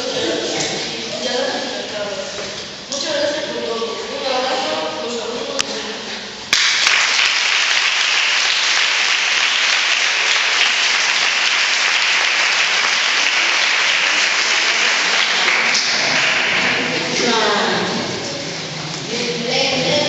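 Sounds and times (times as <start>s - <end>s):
audience applause: 6.6s - 17.2s.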